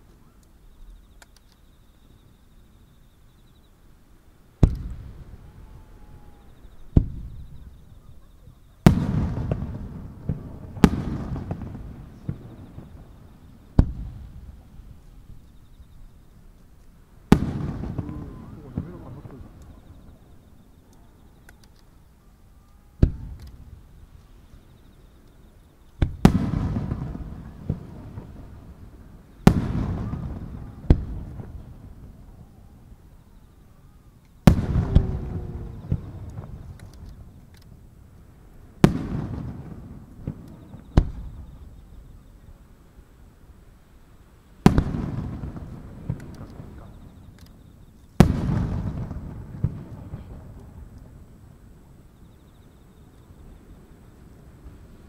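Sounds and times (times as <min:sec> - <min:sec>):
small firework pops: 0:00.0 - 0:01.7, 0:04.6 - 0:28.8, 0:29.4 - 0:33.2, 0:34.2 - 0:42.5, 0:44.6 - 0:51.7
small firework pop: 0:04.6 - 0:05.0, 0:13.8 - 0:14.2, 0:23.0 - 0:23.7, 0:25.3 - 0:28.3, 0:34.2 - 0:37.8, 0:44.6 - 0:51.2
firework shells booming: 0:04.6 - 0:22.0, 0:23.0 - 0:24.4, 0:25.9 - 0:33.1, 0:34.3 - 0:42.4, 0:44.6 - 0:51.7.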